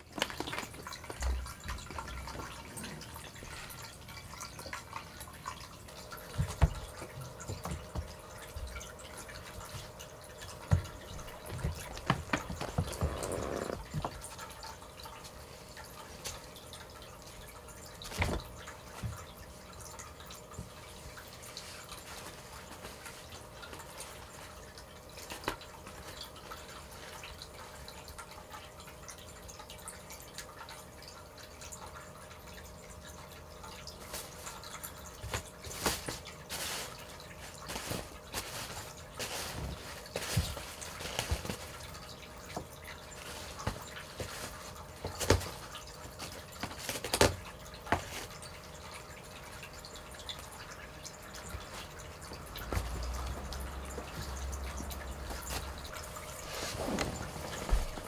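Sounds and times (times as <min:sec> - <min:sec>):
faint steady hum: 0:00.0 - 0:58.0
water fountain trickling: 0:00.0 - 0:58.0
soft knocks and thumps: 0:10.7 - 0:14.2.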